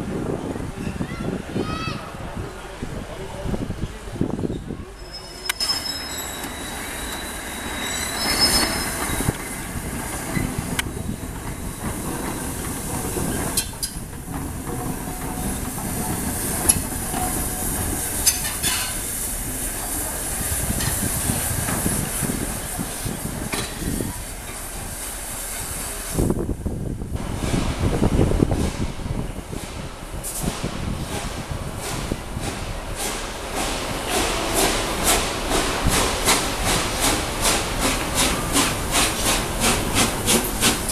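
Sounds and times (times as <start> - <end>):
train wheels rumbling on rail: 0.0 - 40.9
wheels squealing: 4.4 - 14.0.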